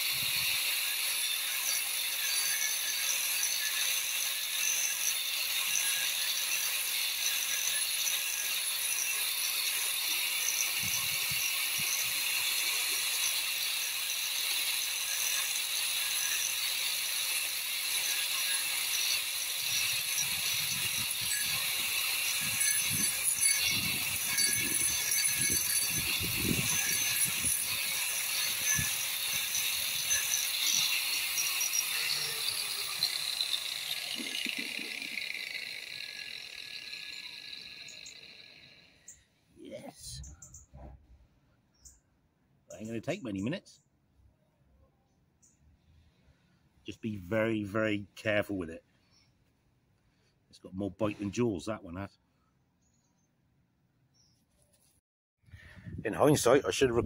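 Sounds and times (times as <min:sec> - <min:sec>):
angle grinder grinding wood: 0:00.0 - 0:39.2.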